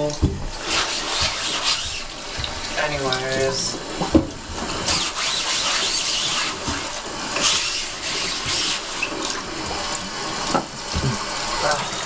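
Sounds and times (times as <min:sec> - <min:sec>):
faucet water splashing: 0:00.0 - 0:12.0
sponge scrubbing mesh: 0:00.6 - 0:02.3, 0:04.6 - 0:09.1.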